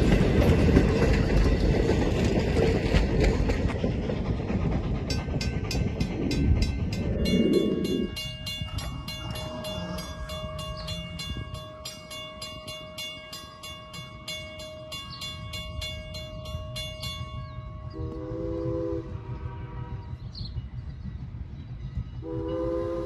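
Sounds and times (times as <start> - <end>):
crossing bell ringing: 5.0 - 18.1
train horn blast: 17.9 - 20.4, 22.2 - 23.0.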